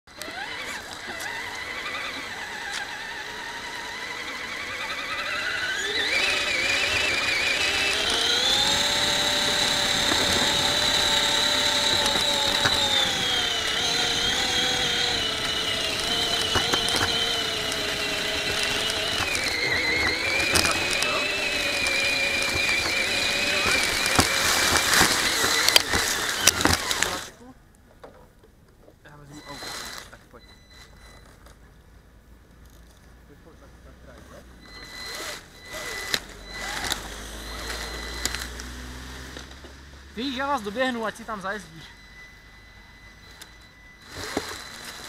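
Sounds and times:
toy truck motor whining: 0.1 - 27.4, 29.1 - 31.5, 34.2 - 45.0.

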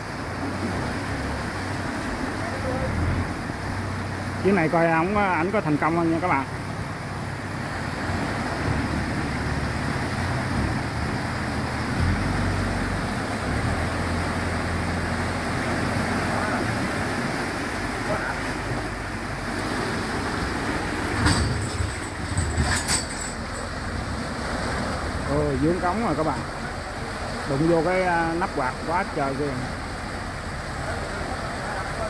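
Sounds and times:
boat engine running: 0.0 - 32.0
water rushing through sluice gate: 0.0 - 32.0
knocks and scrapes: 21.0 - 23.8.

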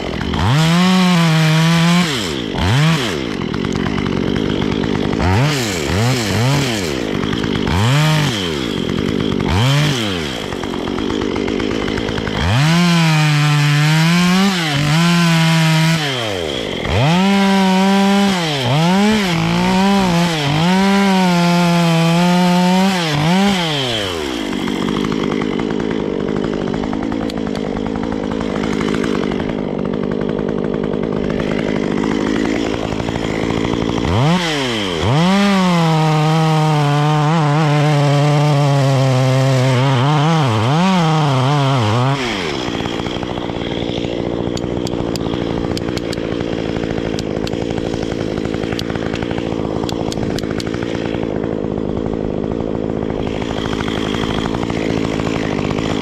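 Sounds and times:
chainsaw cutting log: 0.0 - 56.0
chainsaw revving and idling: 0.0 - 56.0.

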